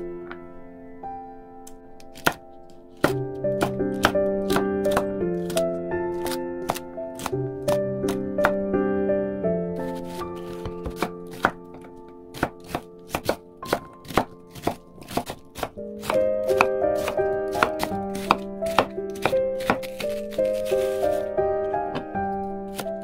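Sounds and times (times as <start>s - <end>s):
background music with held notes: 0.0s - 23.0s
knife chopping on wooden board: 3.0s - 5.6s, 10.5s - 21.0s.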